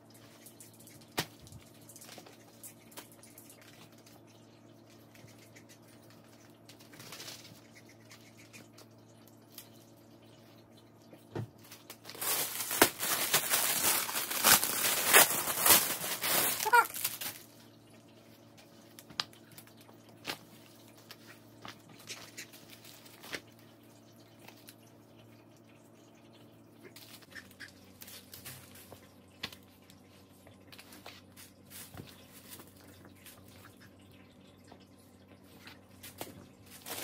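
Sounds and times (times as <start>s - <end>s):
sweater rustling: 12.1s - 17.3s.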